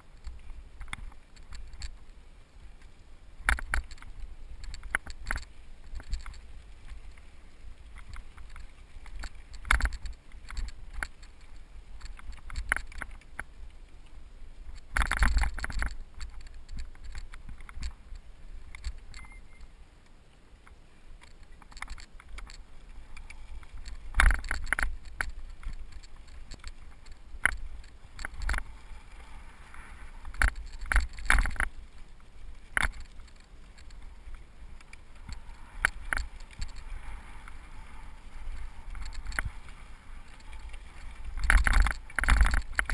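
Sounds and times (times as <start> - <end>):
bike rattling and knocking: 3.4 - 6.4, 7.9 - 13.5, 14.7 - 18.0, 21.2 - 22.6, 23.2 - 28.9, 30.2 - 31.8, 32.7 - 37.5, 38.5 - 39.6, 40.2 - 42.9
tyres running over loose stones: 21.2 - 42.9.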